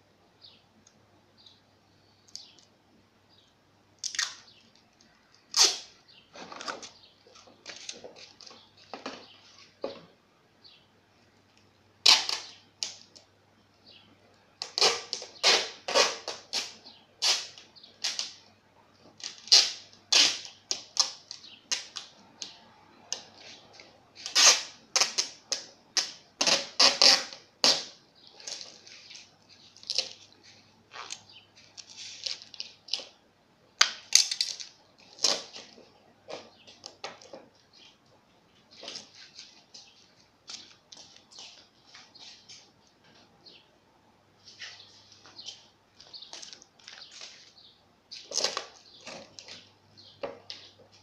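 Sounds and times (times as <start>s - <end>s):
tape pulled off a roll: 5.5s - 7.0s, 14.6s - 18.4s, 24.2s - 29.3s.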